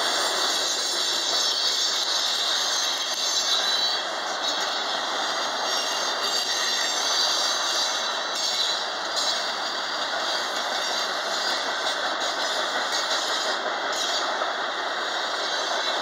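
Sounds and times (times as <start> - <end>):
train wheels on rail: 0.0 - 16.0.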